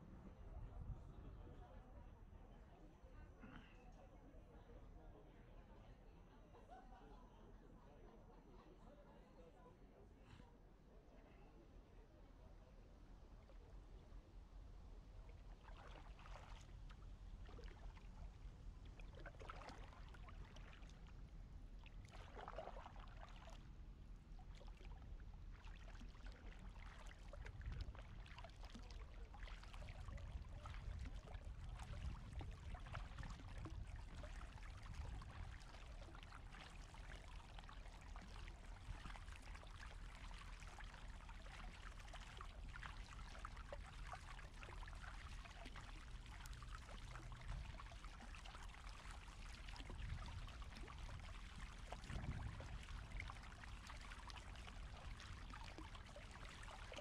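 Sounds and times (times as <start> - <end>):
paddle splashing in water: 15.4 - 21.2, 21.8 - 23.7, 24.3 - 57.0
water trickling: 24.2 - 57.0.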